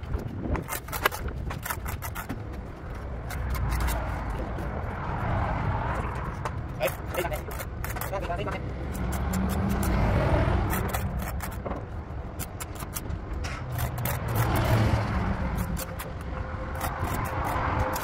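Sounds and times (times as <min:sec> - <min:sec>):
motor vehicles rumbling past: 0:01.6 - 0:18.0.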